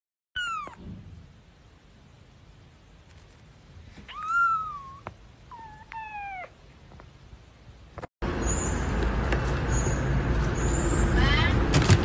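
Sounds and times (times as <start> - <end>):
kitten meowing: 0.4 - 0.8, 4.0 - 6.6
steady background hiss: 0.4 - 8.1.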